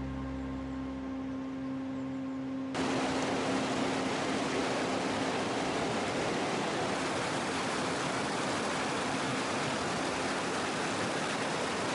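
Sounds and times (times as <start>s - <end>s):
river rapids rushing over rocks: 2.8s - 11.9s.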